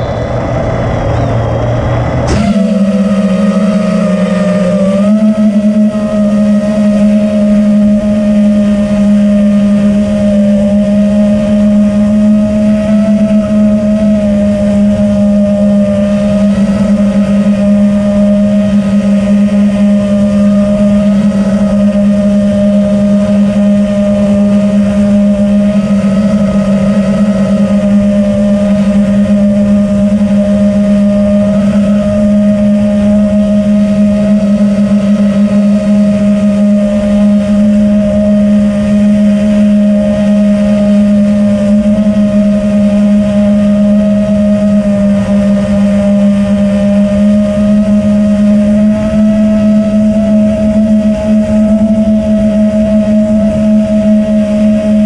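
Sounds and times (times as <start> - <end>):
drone motors and propellers humming: 0.0 - 55.0.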